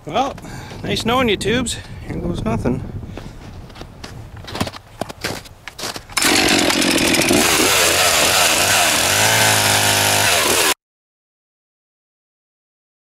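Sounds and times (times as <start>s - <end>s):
chainsaw cutting into ice: 6.2s - 10.8s.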